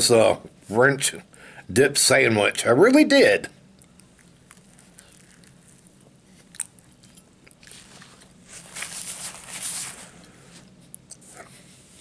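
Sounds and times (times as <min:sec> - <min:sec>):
faint steady hum: 0:00.0 - 0:12.0
chewing sandwich: 0:03.6 - 0:09.3.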